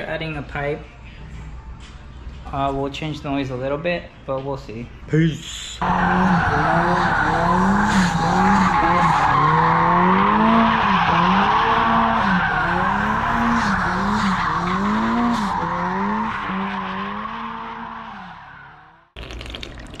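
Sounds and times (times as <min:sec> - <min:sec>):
car engine revving: 0:05.8 - 0:19.1.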